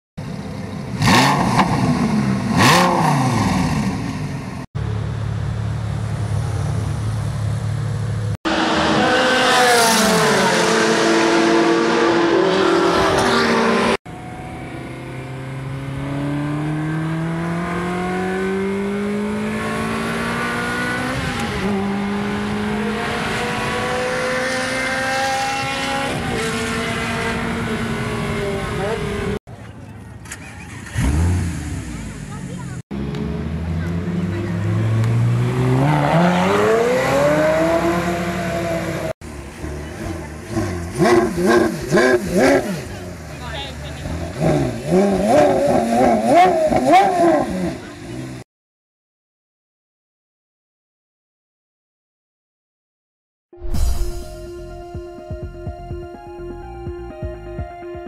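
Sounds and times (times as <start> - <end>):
car engine revving: 0.8 - 4.6, 5.3 - 29.4, 30.7 - 48.4
car engine accelerating through gears: 1.0 - 4.1, 8.5 - 29.4, 30.7 - 32.2, 32.9 - 43.2.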